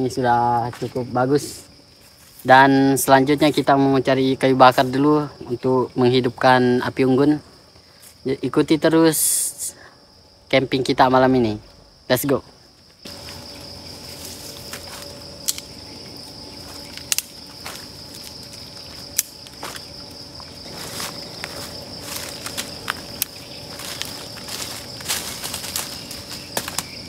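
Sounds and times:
night insects trilling: 0:00.0 - 0:27.0
footsteps through leaf litter: 0:13.1 - 0:15.4, 0:16.2 - 0:27.0
dry sticks snapping: 0:14.5 - 0:15.8, 0:16.7 - 0:20.5, 0:21.4 - 0:27.0.

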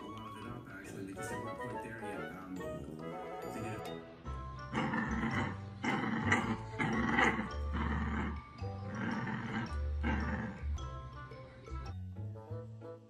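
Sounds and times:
background music: 0:00.0 - 0:13.0
puppy growling: 0:04.6 - 0:11.0.

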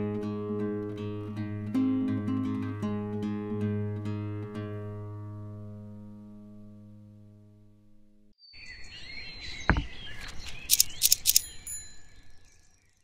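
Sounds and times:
acoustic guitar music: 0:00.0 - 0:08.3
birds chirping: 0:08.4 - 0:13.0
quick bright dings: 0:10.7 - 0:12.3.

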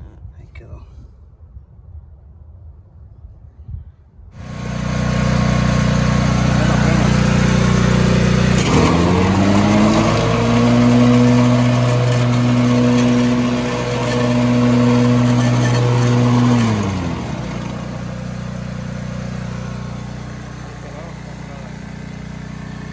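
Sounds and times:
lawn mower running: 0:04.4 - 0:22.9.

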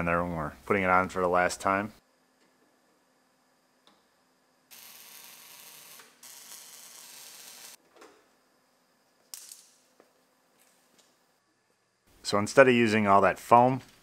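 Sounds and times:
mig welder crackling: 0:04.7 - 0:07.8.

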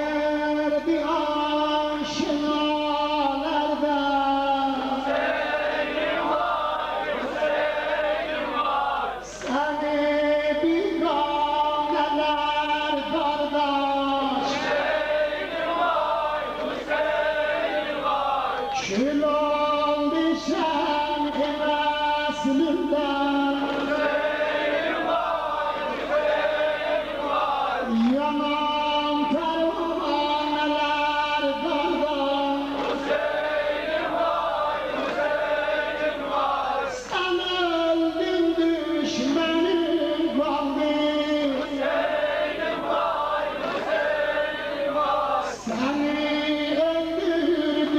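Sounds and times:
group of voices chanting: 0:04.8 - 0:09.5, 0:14.4 - 0:18.8, 0:23.6 - 0:28.1, 0:32.5 - 0:37.1, 0:41.6 - 0:45.8.

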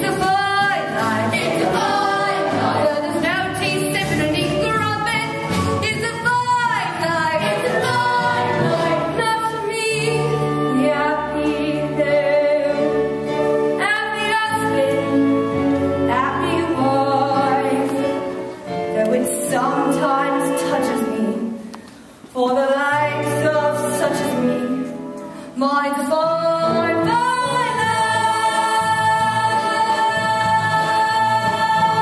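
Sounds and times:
voices singing a show tune: 0:00.0 - 0:04.6, 0:06.1 - 0:09.5
instrumental accompaniment: 0:00.0 - 0:22.3.

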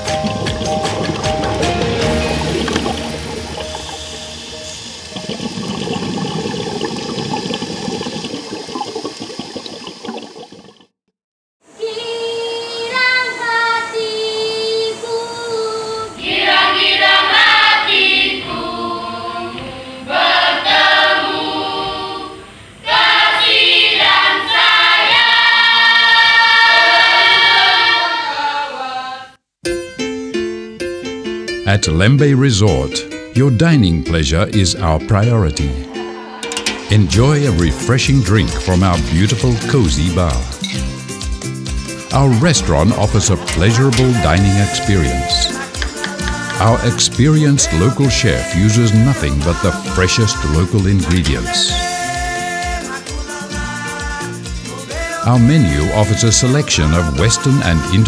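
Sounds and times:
background music: 0:00.0 - 0:07.6, 0:23.0 - 0:58.0
choir singing: 0:11.8 - 0:29.4, 0:35.8 - 0:40.5, 0:42.2 - 0:58.0.

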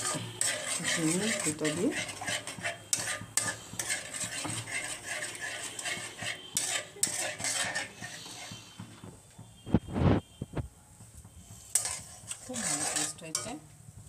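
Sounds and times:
metal spatula scraping a metal pan: 0:00.0 - 0:09.0, 0:11.4 - 0:13.7.

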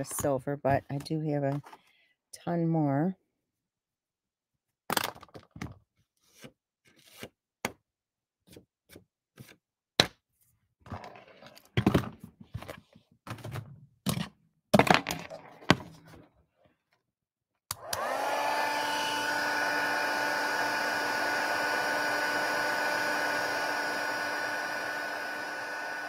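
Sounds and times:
card scraping and thumping on table: 0:06.2 - 0:07.4.

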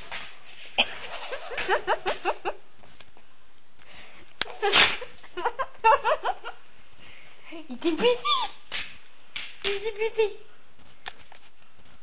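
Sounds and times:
woman giggling: 0:07.5 - 0:08.5, 0:09.7 - 0:10.5.

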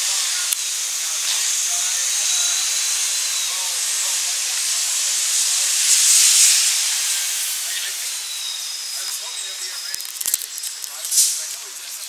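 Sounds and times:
street traffic hiss: 0:00.0 - 0:12.0.

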